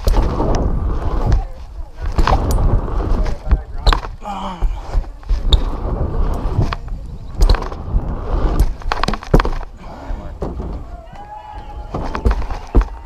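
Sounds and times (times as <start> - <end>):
bike rolling on wooden ramps: 0.0 - 13.0
wind rumbling on microphone: 0.0 - 13.0.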